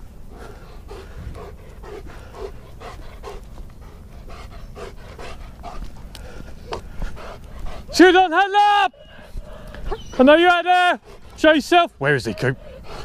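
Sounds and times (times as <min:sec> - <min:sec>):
steady low rumble: 0:00.0 - 0:08.0
dog panting: 0:00.3 - 0:08.2, 0:08.9 - 0:13.0.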